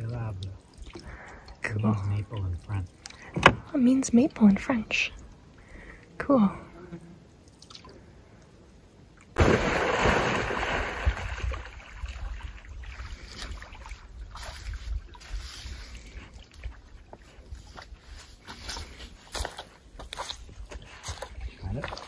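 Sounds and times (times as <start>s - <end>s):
water splashing and lapping: 0.0s - 5.5s, 7.4s - 8.3s, 9.1s - 22.0s
wind buffeting microphone: 10.6s - 18.2s.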